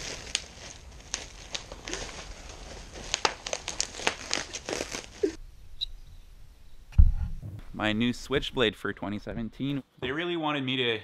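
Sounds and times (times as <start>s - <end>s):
plastic wrapping crinkling: 0.0s - 5.4s.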